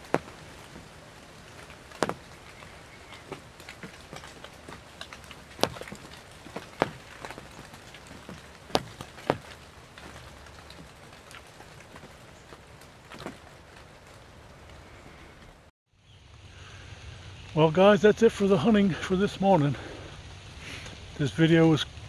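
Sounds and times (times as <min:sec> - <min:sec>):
sharp taps of raindrops: 0:00.0 - 0:15.5
heavy rain hissing: 0:00.0 - 0:15.6, 0:16.5 - 0:22.0.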